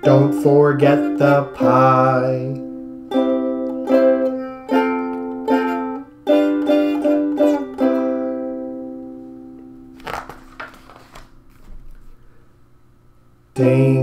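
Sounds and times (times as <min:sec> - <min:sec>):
ukulele strumming: 0:00.0 - 0:10.2
book page turning: 0:10.0 - 0:12.1.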